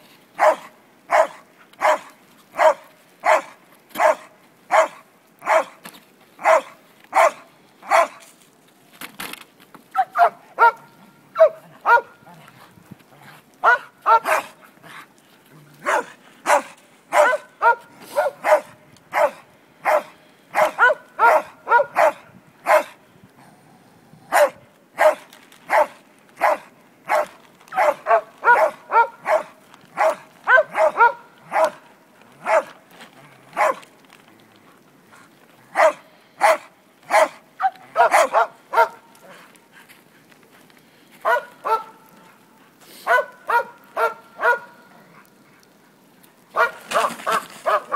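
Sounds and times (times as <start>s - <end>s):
large dog barking: 0.4s - 5.8s, 6.4s - 8.2s, 9.9s - 12.5s, 13.6s - 15.0s, 15.8s - 23.0s, 24.3s - 32.8s, 33.5s - 33.9s, 35.7s - 39.4s, 41.2s - 42.1s, 43.0s - 45.3s, 46.5s - 47.9s.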